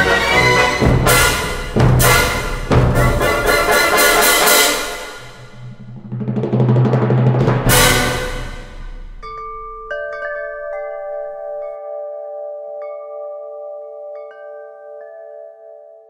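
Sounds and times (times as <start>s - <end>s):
low drum hit: 0.8s - 10.0s
chimes ringing: 8.5s - 16.0s.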